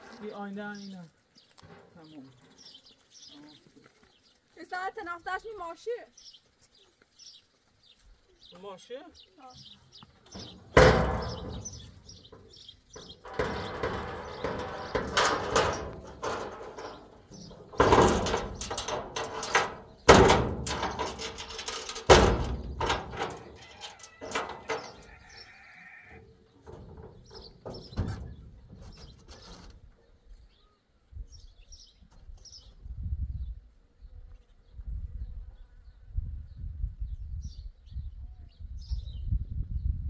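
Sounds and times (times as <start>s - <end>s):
truck bed metal clanking: 10.3s - 29.8s.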